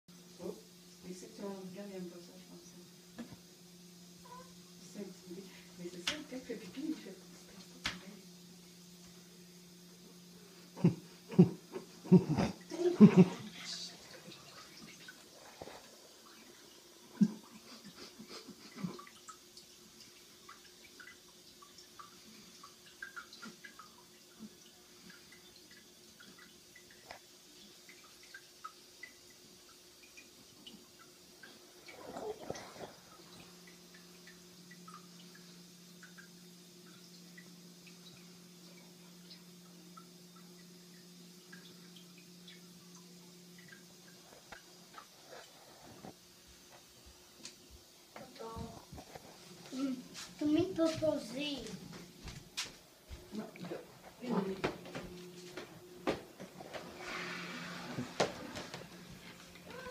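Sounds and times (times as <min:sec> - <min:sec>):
cat urinating into toilet water: 0:02.3 - 0:51.6, 0:53.1 - 0:59.9.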